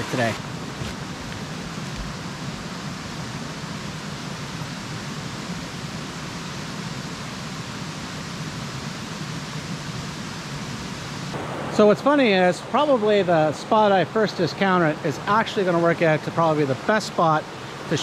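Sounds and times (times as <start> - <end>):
waterfall rushing: 0.0 - 8.2, 9.2 - 18.0.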